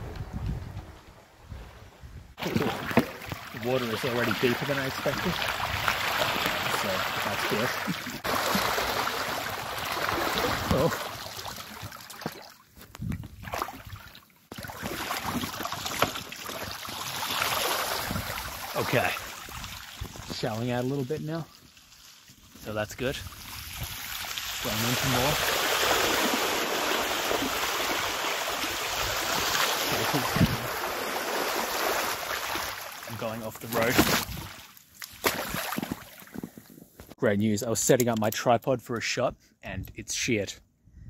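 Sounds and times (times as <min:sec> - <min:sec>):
bike tyre splashing through water: 0:02.4 - 0:12.5, 0:13.4 - 0:20.8, 0:21.6 - 0:36.3.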